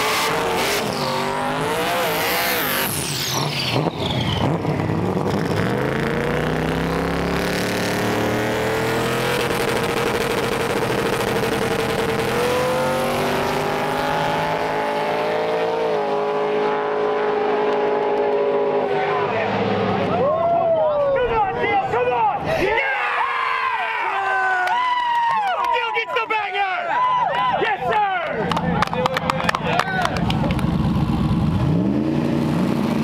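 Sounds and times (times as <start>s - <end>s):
drag racing engines revving: 0.0s - 22.5s, 28.4s - 33.0s
tire squeal: 0.7s - 1.3s, 2.0s - 4.7s.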